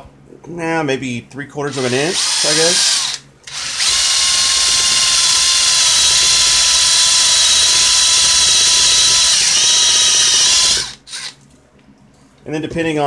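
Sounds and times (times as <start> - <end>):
cordless drill whining: 1.7 - 11.4.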